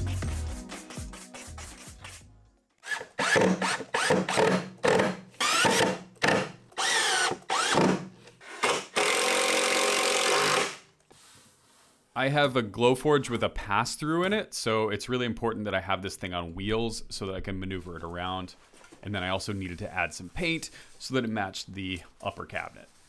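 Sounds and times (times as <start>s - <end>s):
cordless drill driving screws: 2.8s - 10.8s.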